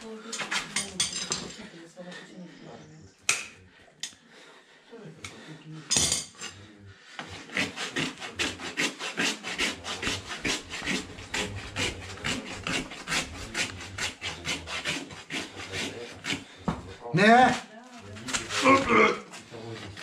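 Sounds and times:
rasp filing a hoof: 0.3 - 1.1, 6.4 - 20.0.

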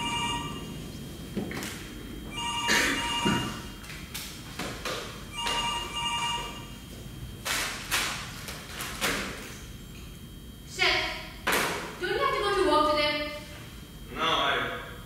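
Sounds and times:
telephone ringing: 0.0 - 0.9, 2.3 - 3.8, 5.3 - 6.8.

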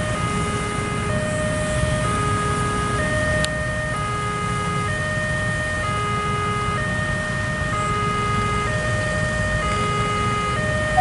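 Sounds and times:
level crossing two-tone alarm: 4.9 - 11.0.

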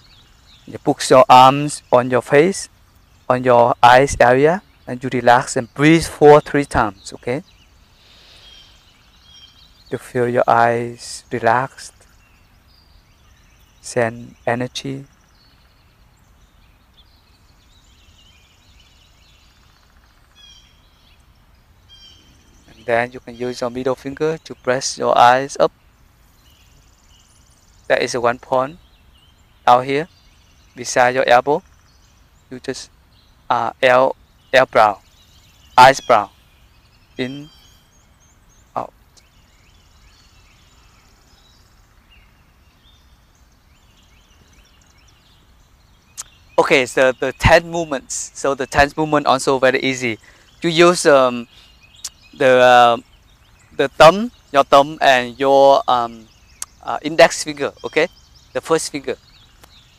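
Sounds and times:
distant birds singing: 0.0 - 59.9
low steady background noise: 0.0 - 59.9
fast high bird trill: 30.8 - 38.9
short chirping call: 33.5 - 41.8, 46.0 - 53.1.

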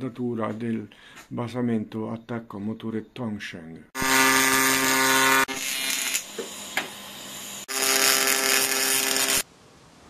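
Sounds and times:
welding arc buzzing: 4.0 - 9.4.

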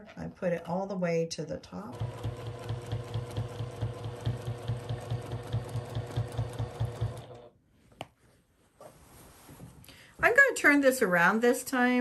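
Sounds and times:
sewing machine stitching: 1.9 - 7.5.

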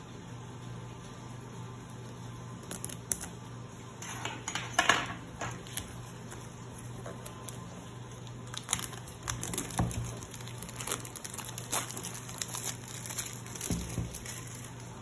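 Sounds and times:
plastic shrink-wrap crinkling: 5.4 - 15.0.

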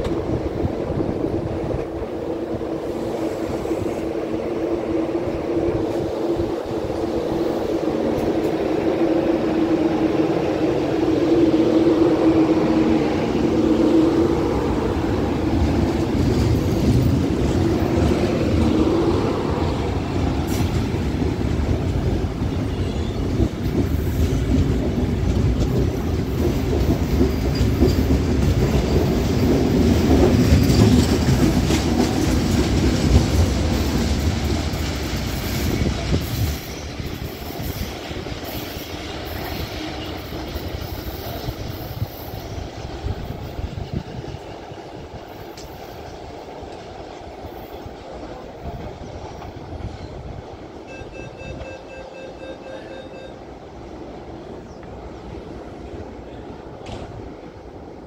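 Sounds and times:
train wheels rumbling on rail: 0.0 - 58.0
knocks of passing train cars: 5.8 - 50.7, 56.7 - 57.8.

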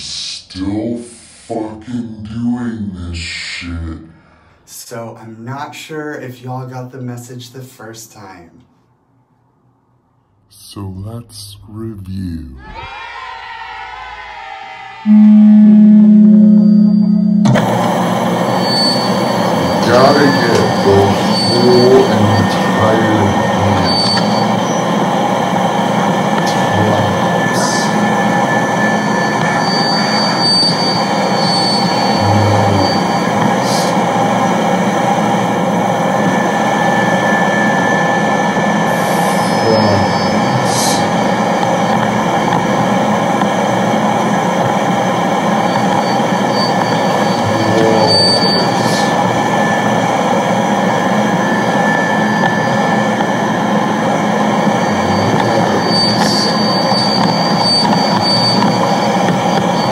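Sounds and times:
loud harsh rumbling noise: 12.6 - 59.9
thin high squeals: 18.5 - 24.9, 26.4 - 34.0, 45.6 - 49.8, 54.6 - 59.9.

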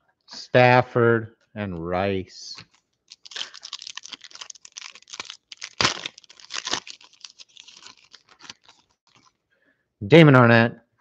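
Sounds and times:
foil pack ripping: 2.6 - 9.3
foil pack crinkling: 2.6 - 9.4.

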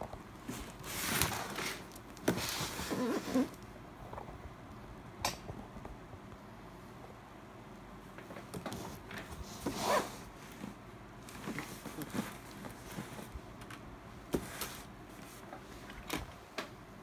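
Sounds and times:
cardboard scraping: 0.4 - 3.6, 8.7 - 13.3.

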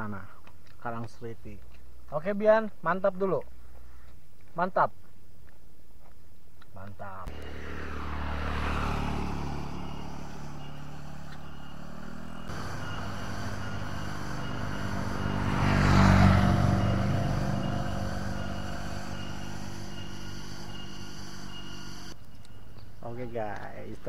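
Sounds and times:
low engine hum: 7.2 - 23.0
motor scooter riding past: 7.3 - 22.2.

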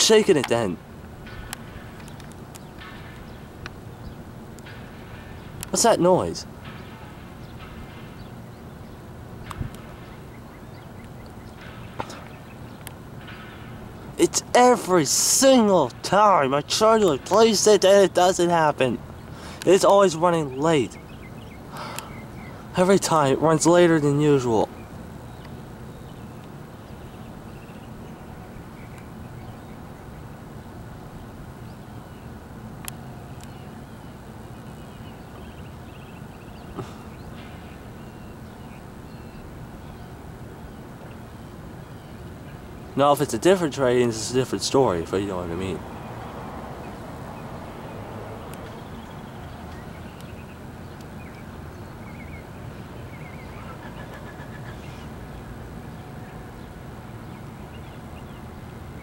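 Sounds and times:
low outdoor rumble: 0.0 - 59.0
faint bird chirps: 47.4 - 55.4.

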